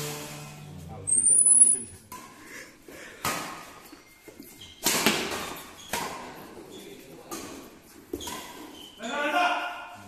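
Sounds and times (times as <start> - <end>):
rackets hitting shuttlecock: 3.2 - 3.8, 4.6 - 6.5.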